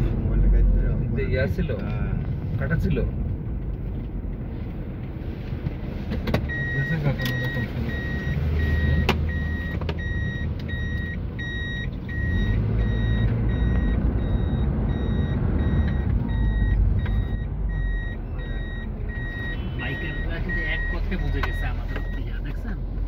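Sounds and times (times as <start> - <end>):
car cabin road and engine noise: 0.0 - 23.0
electronic beep: 6.5 - 22.4.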